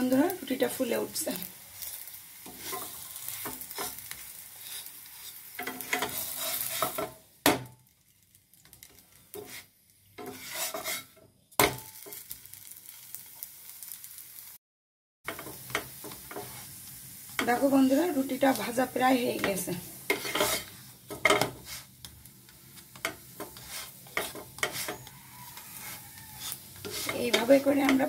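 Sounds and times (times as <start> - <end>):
bread sizzling in oil: 0.0 - 14.6, 15.3 - 28.0
wooden spatula scraping pan: 2.4 - 7.1, 9.3 - 11.2, 16.1 - 16.8, 19.3 - 28.0.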